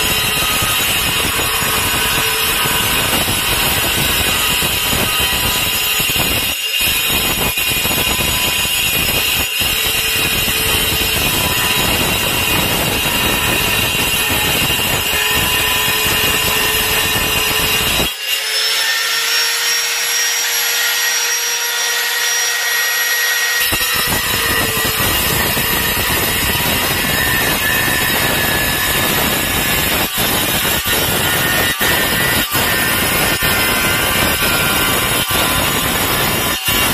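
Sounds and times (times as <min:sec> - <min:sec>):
angle grinder cutting tile: 0:00.0 - 0:36.9.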